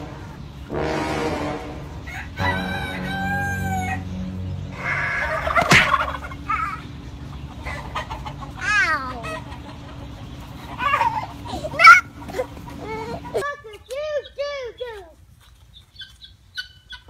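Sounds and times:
chickens clucking: 0:00.0 - 0:00.7, 0:01.9 - 0:17.0
roosters crowing: 0:00.0 - 0:13.5.

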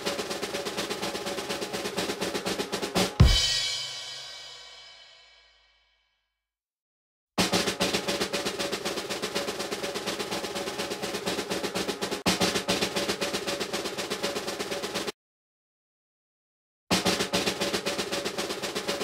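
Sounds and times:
rapid drum roll: 0:00.0 - 0:05.1, 0:07.4 - 0:15.2, 0:16.9 - 0:19.0.

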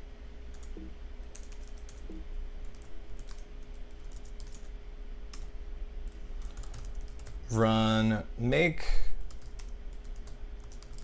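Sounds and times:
faint steady hum: 0:00.0 - 0:11.0
computer keyboard typing: 0:00.5 - 0:04.7, 0:06.1 - 0:07.4, 0:09.3 - 0:11.0.

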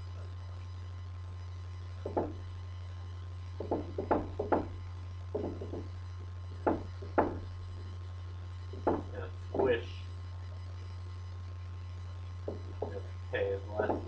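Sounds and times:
steady low hum: 0:00.0 - 0:14.0
marker tapping on whiteboard: 0:02.0 - 0:02.4, 0:03.6 - 0:04.7, 0:05.3 - 0:05.9, 0:06.6 - 0:07.4.

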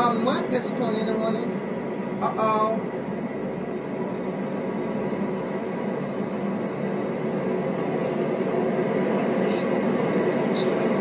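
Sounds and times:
low hum: 0:00.0 - 0:11.0
steady rushing noise: 0:00.0 - 0:11.0
faint high chirps: 0:10.3 - 0:10.8.

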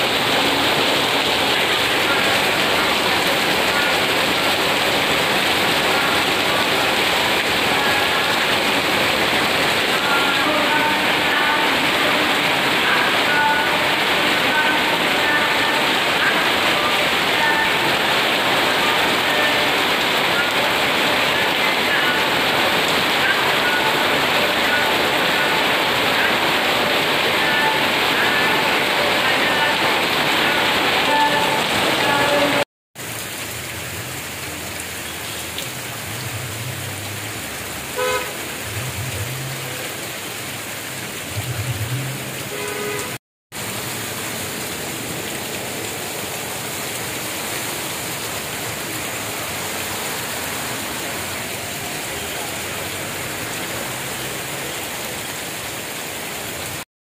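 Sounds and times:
cars driving through water: 0:00.0 - 0:56.8
heavy rain pouring: 0:00.0 - 0:56.9
car horn toot: 0:37.9 - 0:38.6, 0:42.5 - 0:43.2.

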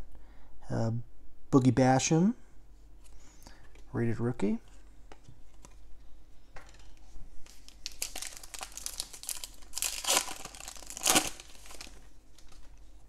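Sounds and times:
foil wrapper crinkling: 0:06.7 - 0:12.8.

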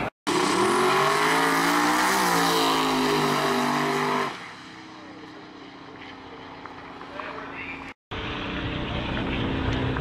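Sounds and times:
drag car engine at full throttle: 0:00.3 - 0:07.1.

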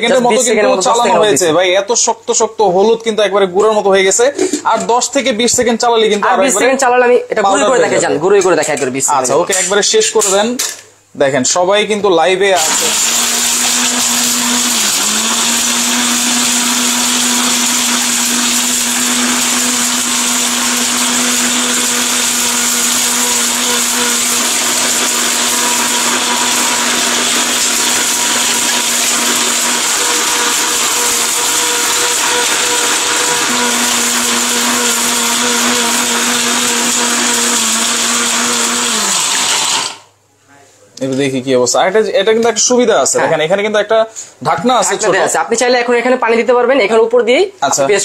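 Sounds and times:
blender grinding: 0:00.0 - 0:01.5, 0:12.5 - 0:40.2.

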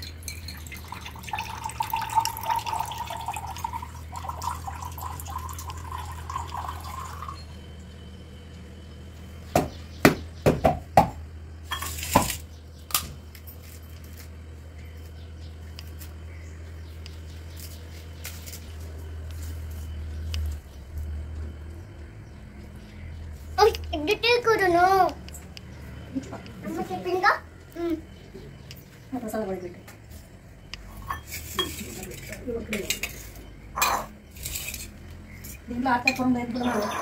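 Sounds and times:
water trickling from tumbler: 0:00.0 - 0:07.5
metallic clinks of vessels: 0:00.0 - 0:07.6, 0:31.0 - 0:36.3
steady low hum: 0:00.0 - 0:37.0.

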